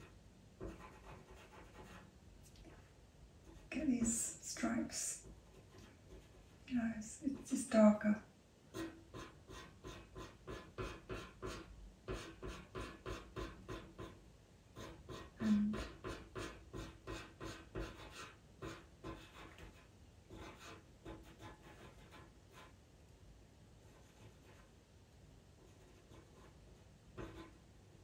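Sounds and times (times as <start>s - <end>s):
pencil scratching on paper: 0.0s - 2.1s, 5.2s - 6.6s, 8.7s - 14.2s, 14.8s - 22.7s, 23.8s - 24.7s, 25.6s - 27.6s.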